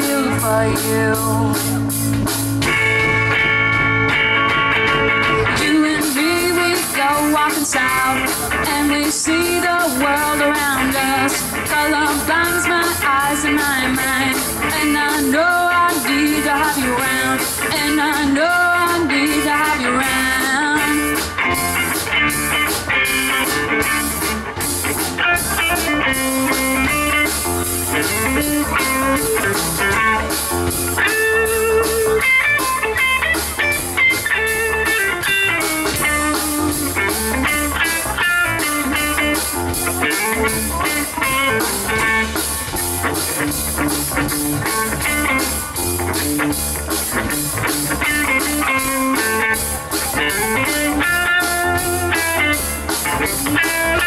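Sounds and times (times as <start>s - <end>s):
electric lead guitar: 0.0s - 54.0s
rock band playing: 0.0s - 54.0s.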